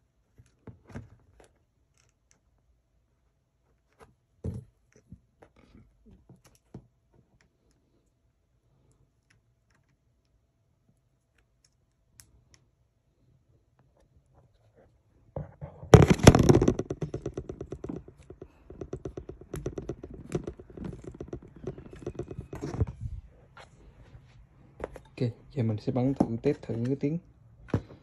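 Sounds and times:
clicking and rubbing: 15.9 - 23.7.

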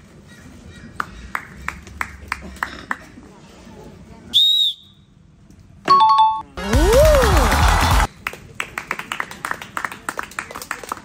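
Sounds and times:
loud whistle blast: 4.3 - 5.1.

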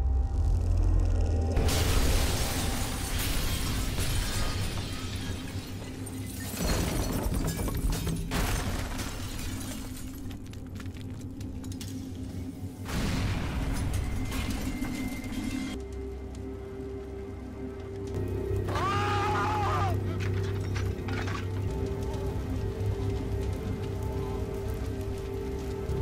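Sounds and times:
dramatic film music: 0.0 - 9.0, 10.0 - 26.0
glass shattering: 1.6 - 10.4, 12.9 - 15.8, 20.2 - 21.6.

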